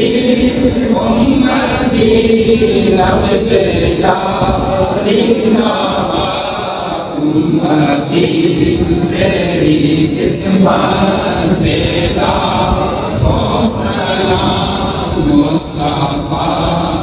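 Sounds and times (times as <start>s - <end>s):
men chanting together: 0.0s - 17.0s.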